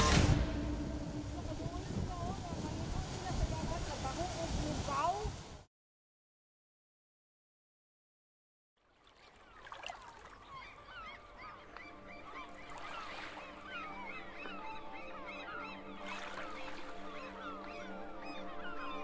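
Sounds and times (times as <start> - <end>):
soft music chord: 0.0 - 2.7, 11.3 - 19.0
flock of egrets squawking: 10.4 - 19.0.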